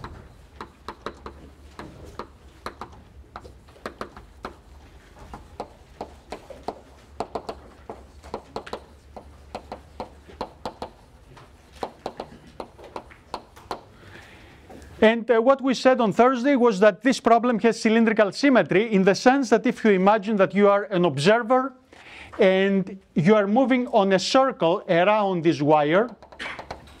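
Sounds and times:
chalk tapping and scraping on blackboard: 0:00.0 - 0:13.9, 0:26.1 - 0:27.0.

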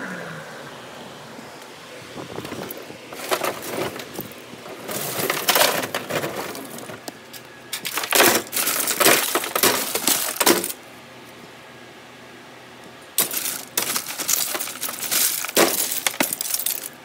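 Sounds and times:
scrap clattering in a bin: 0:02.5 - 0:10.8, 0:13.2 - 0:17.0.

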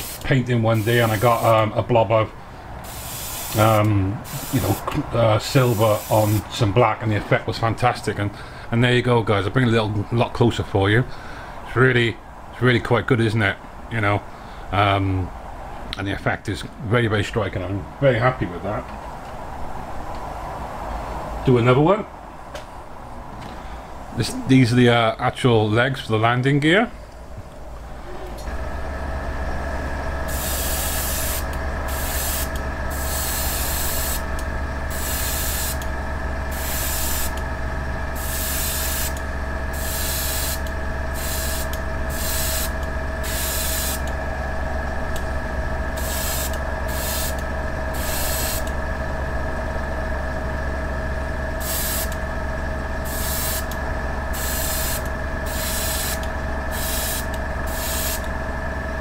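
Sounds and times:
airbrush hissing bursts: 0:00.0 - 0:01.6, 0:02.8 - 0:04.9, 0:05.6 - 0:06.5, 0:30.3 - 0:35.9, 0:36.5 - 0:37.4, 0:38.1 - 0:44.1, 0:46.0 - 0:48.7, 0:51.6 - 0:52.2, 0:53.0 - 0:53.7, 0:54.3 - 0:58.3
electric motor hum with whine: 0:00.0 - 0:06.5, 0:27.6 - 0:59.0.

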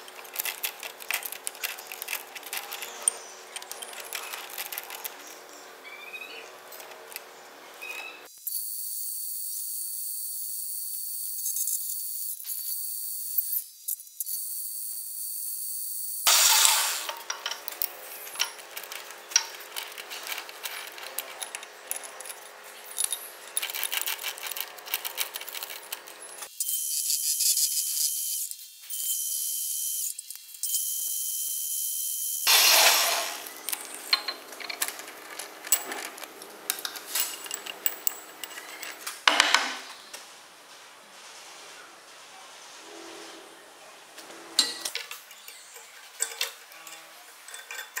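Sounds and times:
metal chips clinking: 0:00.0 - 0:08.2, 0:16.3 - 0:26.5, 0:32.5 - 0:39.1, 0:44.8 - 0:48.0
loud burst: 0:16.3 - 0:17.1, 0:32.5 - 0:33.5.

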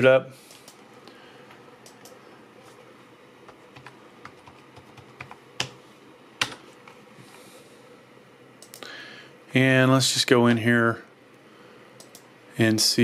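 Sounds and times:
keyboard keys tapping: 0:03.5 - 0:05.8, 0:06.4 - 0:06.6
sharp clicks: 0:12.0 - 0:12.3.

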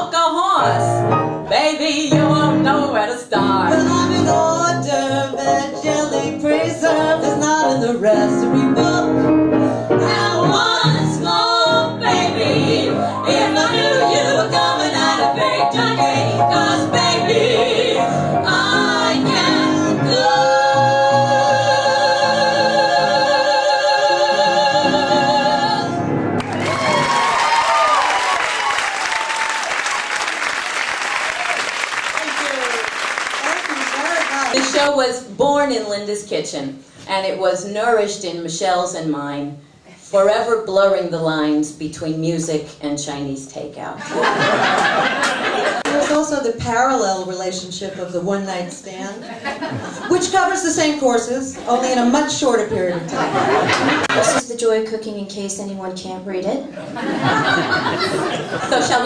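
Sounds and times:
piano accompaniment: 0:00.0 - 0:28.9
women singing in harmony: 0:01.5 - 0:26.1.

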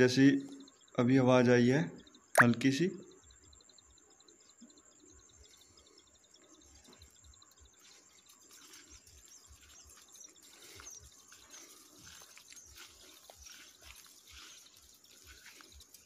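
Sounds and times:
faint bird chirps: 0:00.0 - 0:16.0
footsteps through dry stalks: 0:07.7 - 0:16.0.

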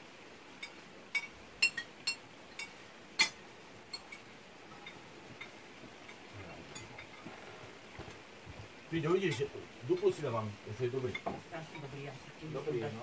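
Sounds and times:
spoons clinking on soup plates: 0:00.6 - 0:07.4.

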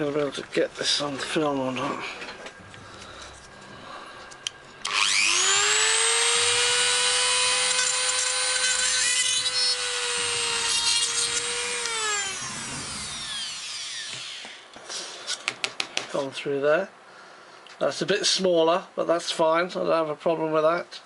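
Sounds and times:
rotary tool high whine: 0:02.6 - 0:14.8
drill bit grinding resin: 0:04.8 - 0:14.6.

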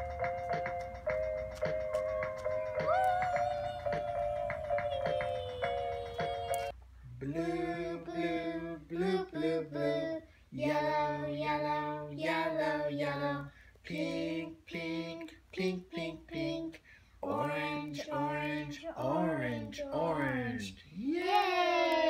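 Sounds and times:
person singing: 0:01.6 - 0:11.3.

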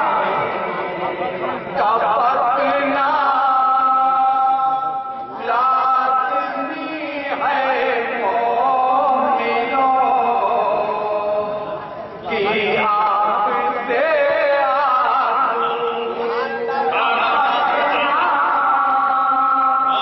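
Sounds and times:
men chanting together: 0:12.3 - 0:20.0.

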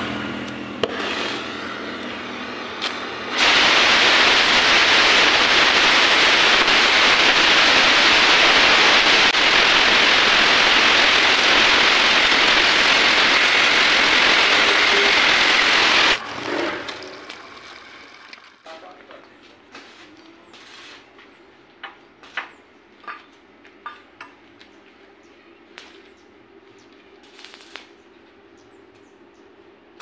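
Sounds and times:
gas torch flame hissing: 0:02.8 - 0:16.2.

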